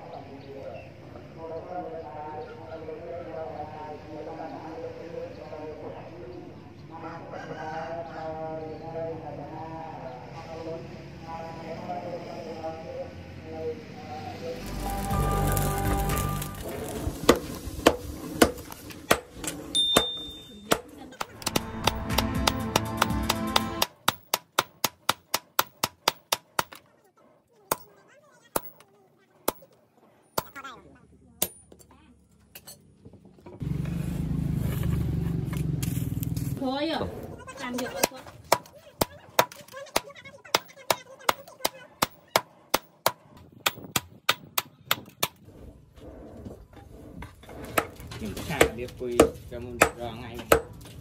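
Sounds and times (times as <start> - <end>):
hammer striking hot steel on anvil: 17.3 - 26.8, 48.6 - 50.8.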